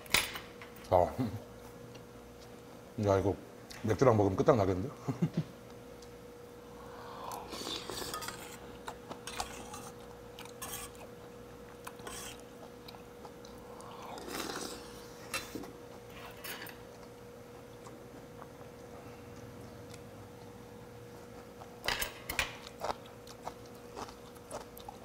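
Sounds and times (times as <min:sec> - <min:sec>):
faint steady hum: 0:00.0 - 0:25.0
slurping and chewing: 0:07.0 - 0:21.9, 0:22.5 - 0:25.0.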